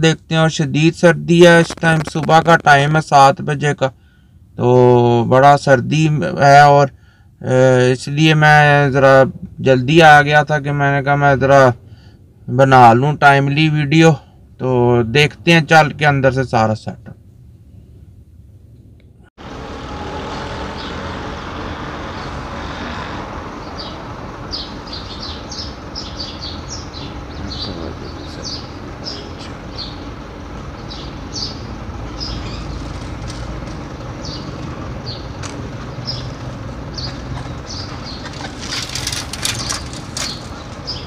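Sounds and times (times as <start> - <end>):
low rumble of traffic: 0.0 - 41.0
small birds chirping: 20.8 - 41.0.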